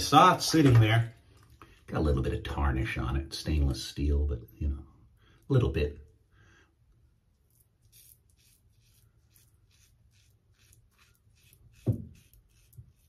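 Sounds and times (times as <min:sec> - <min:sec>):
razor scraping stubble: 0:07.5 - 0:13.0.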